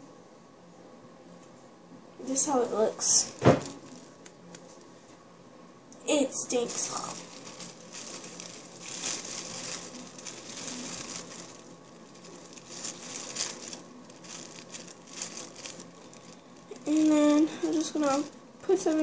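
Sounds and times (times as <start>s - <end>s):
plastic bag crinkling: 2.8s - 4.8s, 6.1s - 19.0s.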